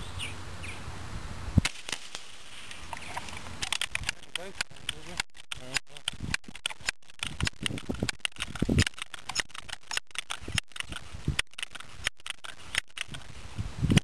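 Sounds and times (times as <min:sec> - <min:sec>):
pellet pistol handling clicks: 0:02.8 - 0:13.3.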